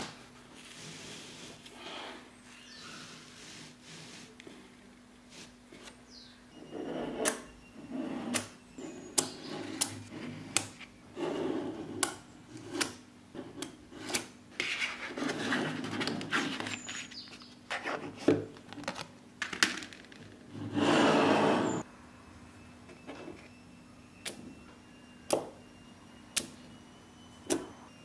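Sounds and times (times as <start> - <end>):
balls rolling over a table: 19.6 - 21.8.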